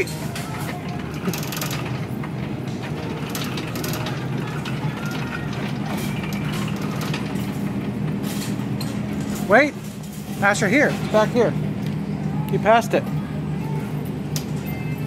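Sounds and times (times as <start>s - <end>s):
shopping cart rolling and rattling: 0.0s - 11.5s
steady low hum: 0.0s - 15.0s.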